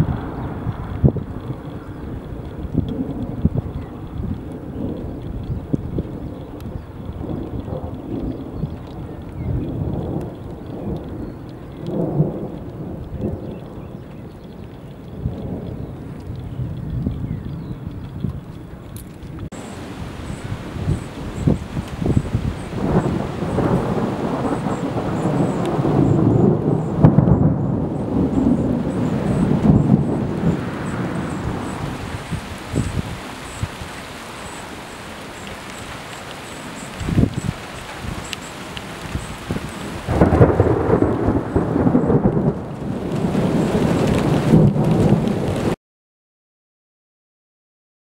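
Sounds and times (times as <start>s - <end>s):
thunder rolling rumble: 0.0s - 45.8s.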